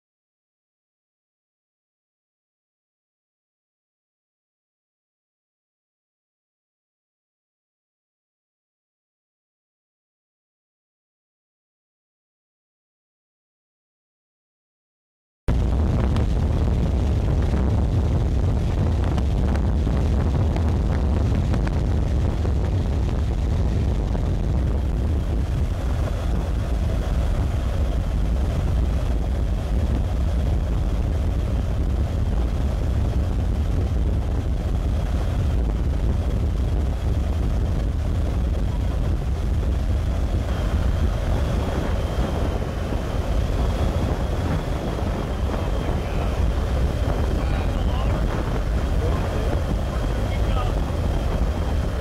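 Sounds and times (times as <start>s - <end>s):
wind buffeting microphone: 15.5s - 52.0s.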